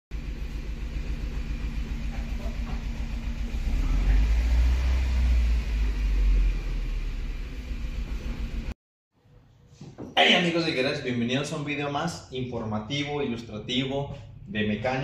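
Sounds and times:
car engine and road noise rumble: 0:00.1 - 0:08.8.

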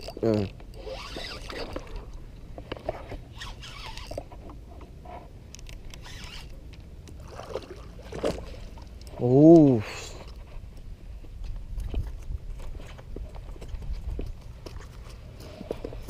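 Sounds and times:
handling clicks and scrapes: 0:00.0 - 0:06.9.

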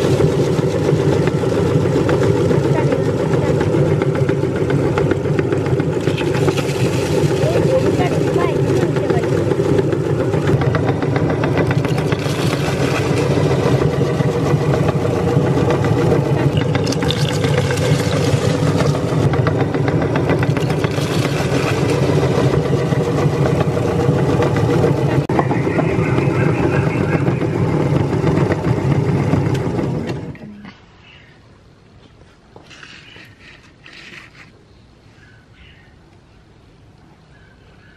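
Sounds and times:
meat grinder motor hum: 0:00.0 - 0:25.4, 0:26.6 - 0:30.4
cookies crackling in grinder: 0:03.6 - 0:10.6, 0:16.4 - 0:19.5.

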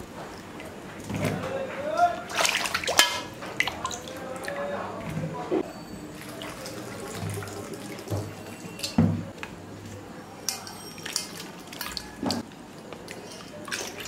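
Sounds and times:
water sloshing and dripping: 0:00.0 - 0:14.0
dishes clinking and knocking: 0:08.0 - 0:09.4.

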